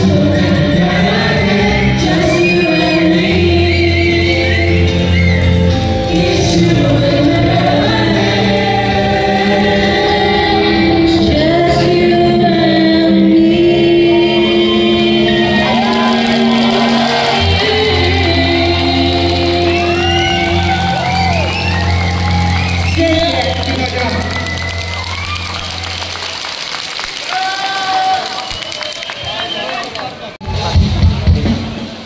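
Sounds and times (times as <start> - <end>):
person singing: 0.0 - 21.8
amplified backing music: 0.0 - 26.3.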